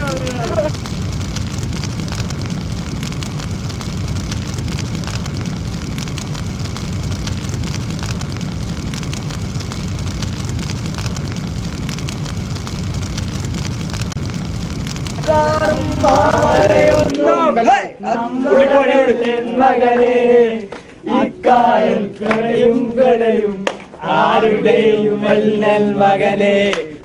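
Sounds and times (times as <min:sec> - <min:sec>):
crackling twigs: 0:00.0 - 0:17.2
roar of flame: 0:00.0 - 0:17.2.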